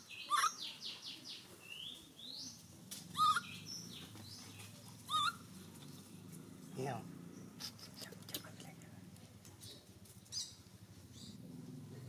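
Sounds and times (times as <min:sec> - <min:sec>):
animal chirps and whistles: 0:03.2 - 0:03.5
animal squealing: 0:03.2 - 0:03.5, 0:05.1 - 0:05.4.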